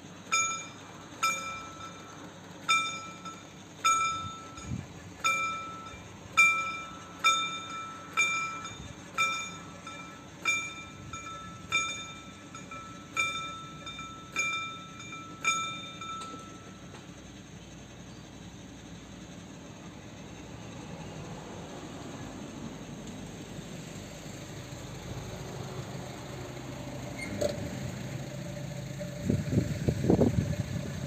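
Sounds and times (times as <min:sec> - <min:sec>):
level-crossing warning bell: 0:00.0 - 0:19.8.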